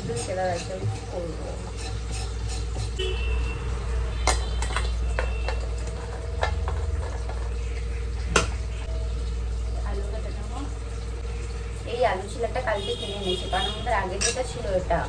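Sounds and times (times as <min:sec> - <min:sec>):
metallic clinks in steel bowl: 0:14.2 - 0:14.6.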